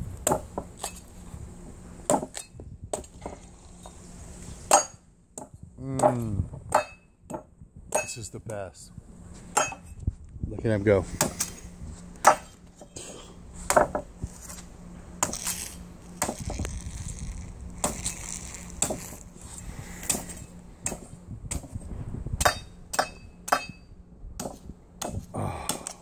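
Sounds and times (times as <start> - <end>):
machete chopping coconut: 2.1 - 3.1, 5.9 - 7.0, 12.2 - 12.5, 15.2 - 15.5, 16.2 - 16.5, 17.8 - 18.2, 18.8 - 19.2, 20.0 - 21.7, 24.4 - 26.0.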